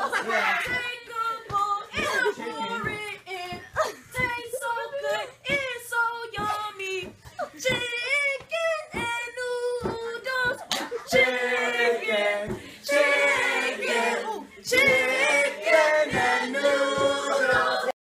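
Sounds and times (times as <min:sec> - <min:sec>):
young voices chanting together: 0:11.0 - 0:18.0.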